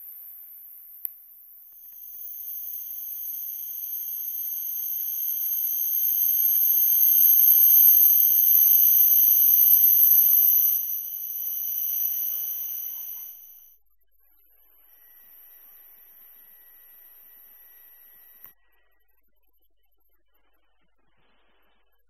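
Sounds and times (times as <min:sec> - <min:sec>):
train braking whine: 0:02.0 - 0:13.6.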